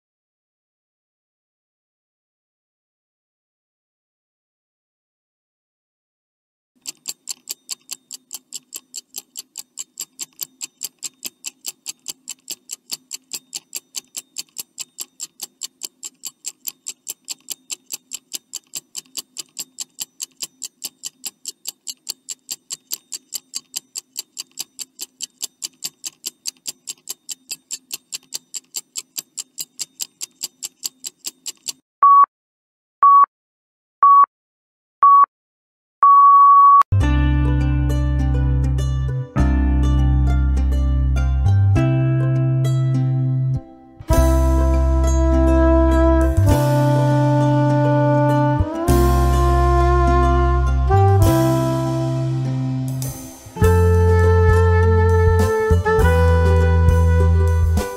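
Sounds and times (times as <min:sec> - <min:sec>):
clock ticking: 0:06.8 - 0:31.8
short electronic beeps: 0:32.0 - 0:32.3, 0:33.0 - 0:33.3, 0:34.0 - 0:34.3, 0:35.0 - 0:35.3, 0:36.0 - 0:36.9.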